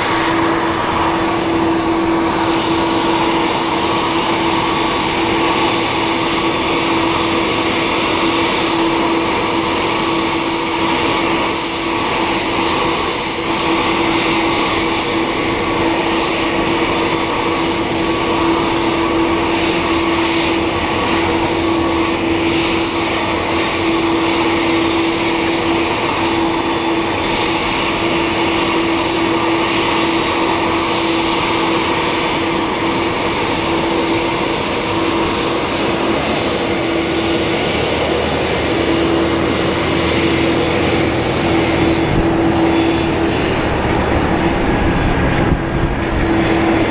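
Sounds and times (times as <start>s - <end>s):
jet engines idling: 0.0s - 46.9s.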